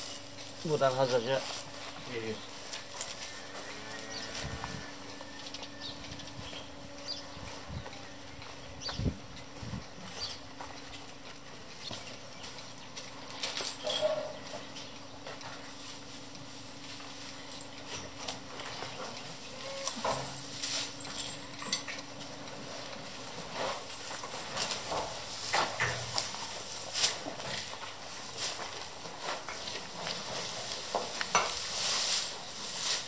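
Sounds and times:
hay rustling and crackling: 0:00.0 - 0:05.5, 0:15.4 - 0:33.0.

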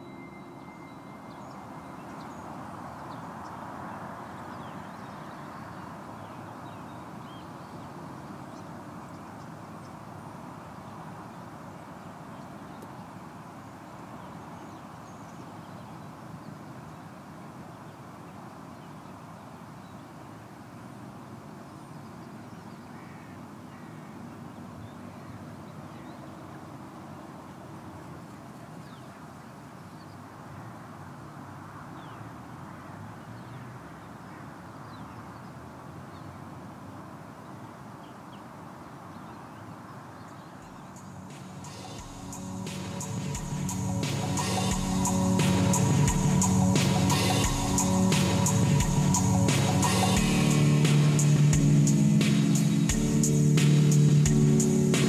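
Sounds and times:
steady rush of noise: 0:00.0 - 0:22.1, 0:36.5 - 0:55.0
faint bird calls: 0:21.8 - 0:26.7.

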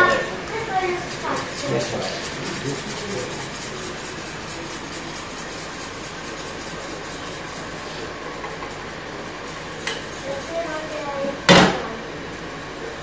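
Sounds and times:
whisk scraping in a saucepan: 0:00.0 - 0:08.2, 0:09.4 - 0:11.2.

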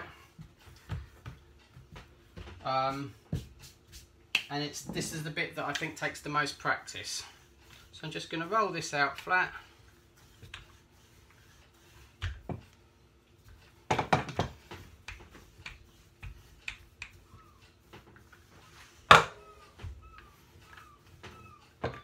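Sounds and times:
rolling pin knocking on wood: 0:13.9 - 0:16.4, 0:19.1 - 0:20.0.

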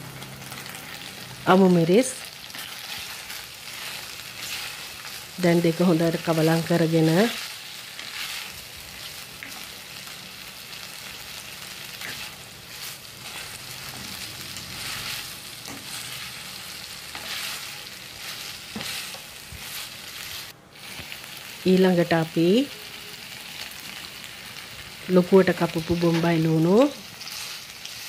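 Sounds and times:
food sizzling in a frying pan: 0:00.0 - 0:28.0
spatula scraping through food: 0:11.9 - 0:21.1.

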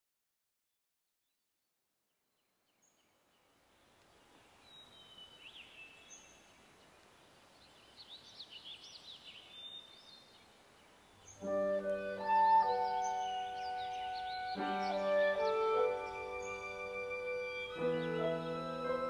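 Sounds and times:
soft hiss: 0:02.7 - 0:19.0
bird chirps: 0:04.1 - 0:19.0.

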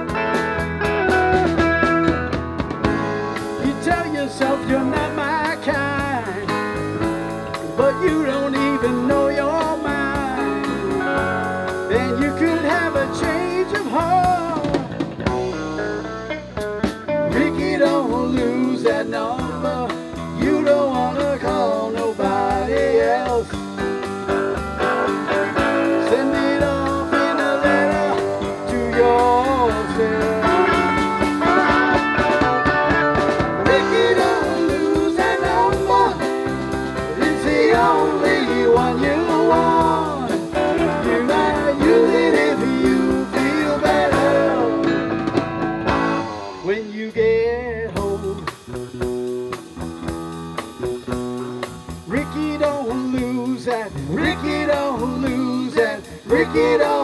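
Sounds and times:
drum kit: 0:00.0 - 0:57.0
electric bass guitar: 0:00.0 - 0:57.0
lead guitar bent notes: 0:23.6 - 0:46.9.

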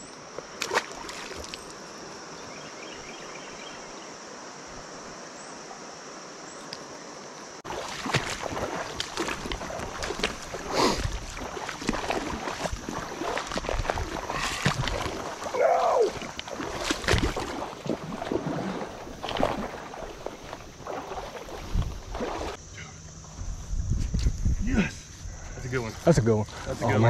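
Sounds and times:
wading through shallow water: 0:00.2 - 0:03.7, 0:07.6 - 0:23.4, 0:24.6 - 0:27.0
creek water running over rocks: 0:00.2 - 0:22.6
brief water splashes: 0:07.6 - 0:22.6.

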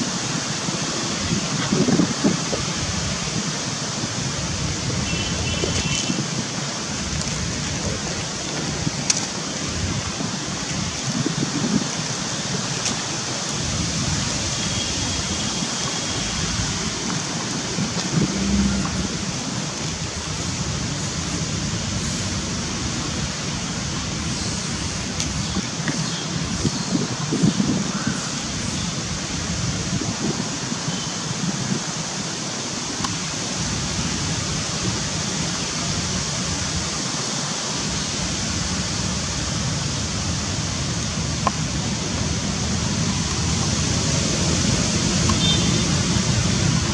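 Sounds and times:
steady rushing noise: 0:00.0 - 0:27.8, 0:31.4 - 0:46.9
outdoor rushing noise: 0:15.3 - 0:22.8.

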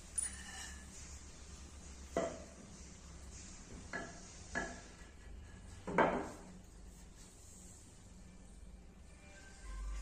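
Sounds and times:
metallic clinks: 0:00.0 - 0:00.8.

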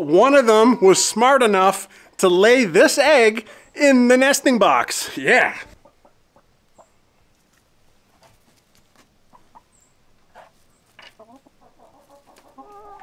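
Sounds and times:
chickens clucking: 0:01.6 - 0:02.3, 0:05.4 - 0:13.0.

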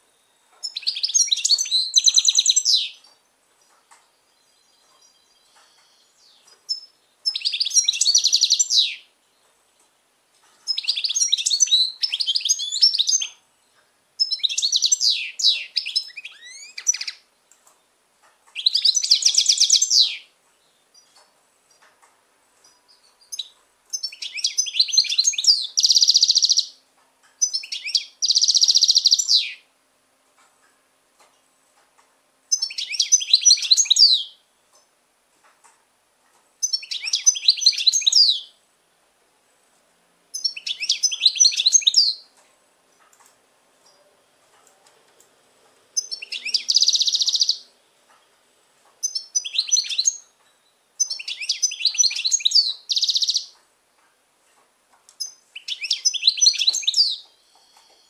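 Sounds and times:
goldfinch singing: 0:00.6 - 0:03.2, 0:04.2 - 0:09.1, 0:10.6 - 0:13.4, 0:14.2 - 0:17.3, 0:18.5 - 0:21.2, 0:22.7 - 0:26.8, 0:27.4 - 0:29.7, 0:32.5 - 0:34.4, 0:36.6 - 0:38.6, 0:40.3 - 0:42.3, 0:46.0 - 0:48.3, 0:49.0 - 0:53.6, 0:55.2 - 0:58.0.

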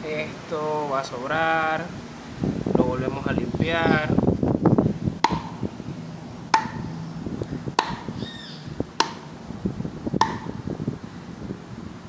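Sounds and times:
faint bird call: 0:08.1 - 0:08.7.

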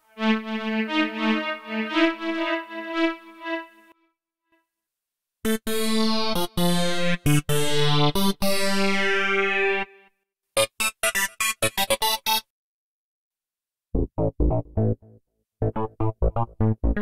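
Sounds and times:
synth notes and chords: 0:00.0 - 0:04.0, 0:14.0 - 0:17.0.

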